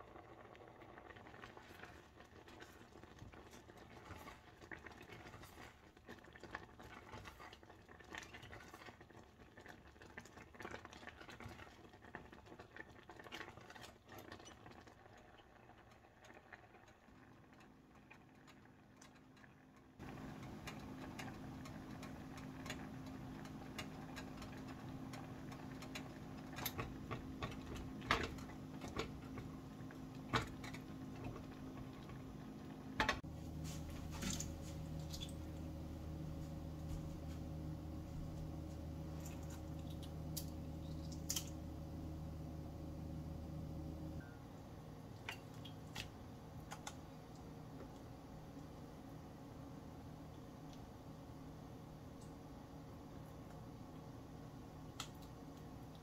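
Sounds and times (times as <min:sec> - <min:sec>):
oatmeal bubbling and popping: 0:00.0 - 0:33.3, 0:38.2 - 0:42.0, 0:44.5 - 0:56.0
steady low hum: 0:19.8 - 0:56.0
spatula stirring and knocking pan: 0:20.1 - 0:32.2.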